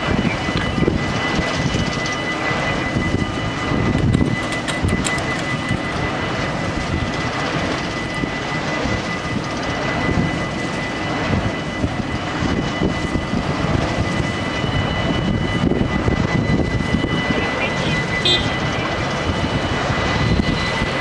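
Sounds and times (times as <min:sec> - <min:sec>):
level crossing warning bells: 0:00.0 - 0:06.0, 0:14.4 - 0:21.0
steady low rumble: 0:00.0 - 0:21.0.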